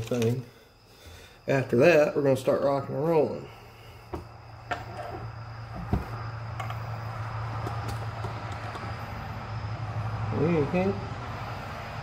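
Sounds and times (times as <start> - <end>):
low engine hum: 5.3 - 12.0.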